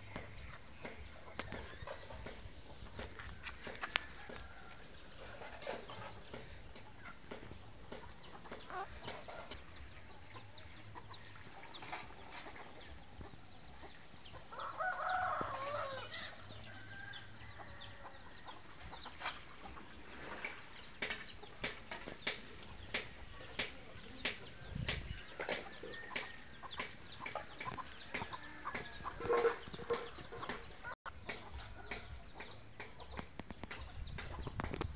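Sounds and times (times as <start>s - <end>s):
chickens clucking: 0.0s - 34.9s
rooster crowing: 14.5s - 18.0s.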